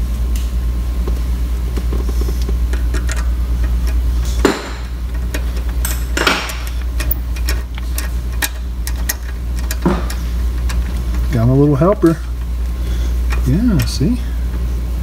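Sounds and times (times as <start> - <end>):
steady low hum: 0.0 - 15.0
loud metal knocks: 4.4 - 5.0
ratchet clicking: 5.1 - 11.3.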